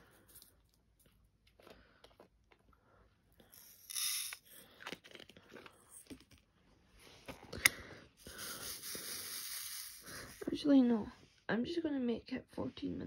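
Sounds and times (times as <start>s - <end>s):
resin beads rattling in tray: 3.5s - 4.5s, 8.3s - 10.6s.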